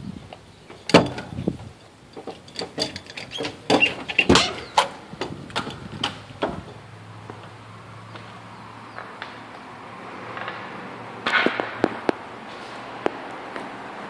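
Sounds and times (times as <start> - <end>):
door opening: 0.7 - 6.8.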